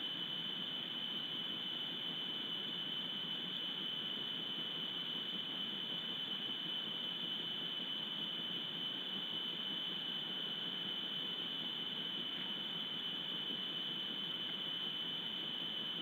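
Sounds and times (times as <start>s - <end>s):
high-pitched electronic whine: 0.0s - 16.0s.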